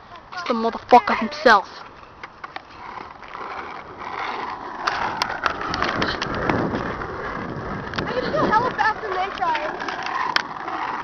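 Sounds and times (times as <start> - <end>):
skateboard wheels rolling on asphalt: 0.0 - 11.0.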